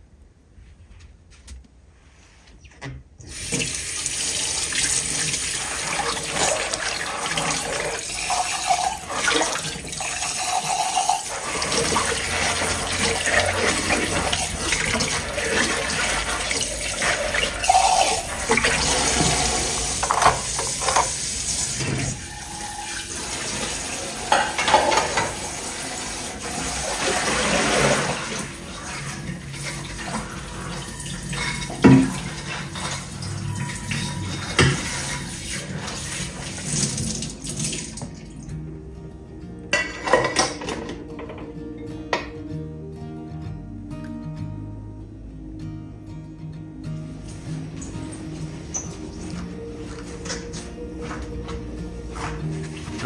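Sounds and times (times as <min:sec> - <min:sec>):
tap running into a sink: 0:03.3 - 0:10.8, 0:11.6 - 0:22.2, 0:31.6 - 0:33.0, 0:34.4 - 0:35.2.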